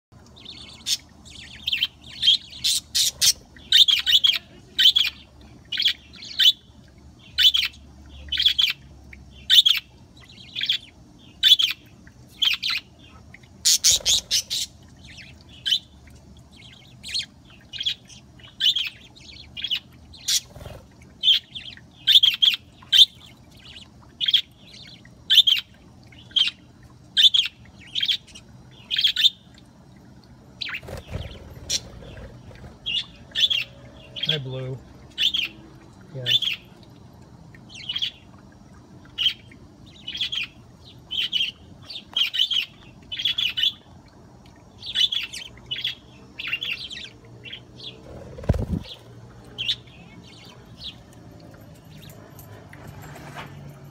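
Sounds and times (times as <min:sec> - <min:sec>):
budgerigars chirping: 0:00.5 - 0:06.7, 0:07.3 - 0:08.8, 0:13.6 - 0:15.9, 0:16.6 - 0:25.7, 0:30.6 - 0:35.6, 0:36.3 - 0:36.7.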